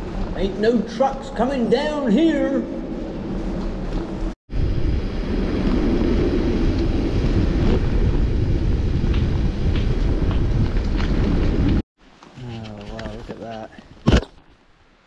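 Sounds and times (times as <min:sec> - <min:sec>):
road noise: 0:00.0 - 0:11.8
wind buffeting microphone: 0:03.7 - 0:11.8.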